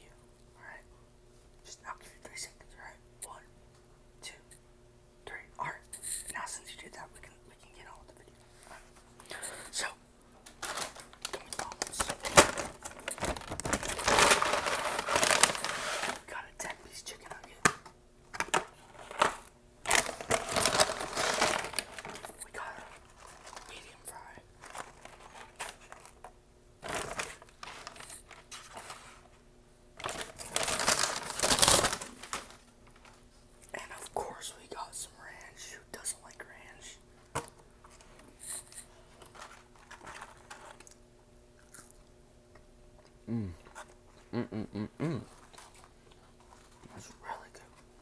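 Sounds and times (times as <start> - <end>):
paper bag crinkling and rustling: 10.5 - 16.2, 18.8 - 23.8, 24.6 - 26.2, 26.8 - 29.2, 30.0 - 33.2, 39.1 - 40.9.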